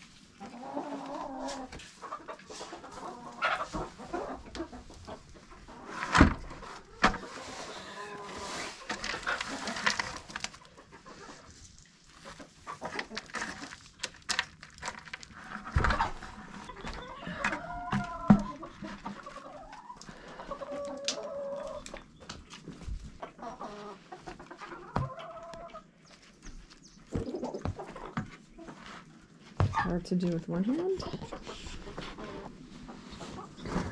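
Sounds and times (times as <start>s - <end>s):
chickens clucking: 0.2s - 14.0s, 15.4s - 33.9s
knocks and scrapes: 30.9s - 33.9s.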